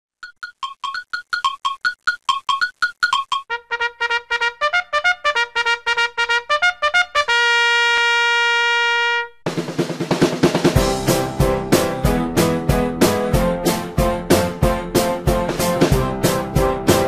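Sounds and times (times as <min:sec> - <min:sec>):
tune with drums: 0:00.2 - 0:03.5, 0:09.4 - 0:17.0.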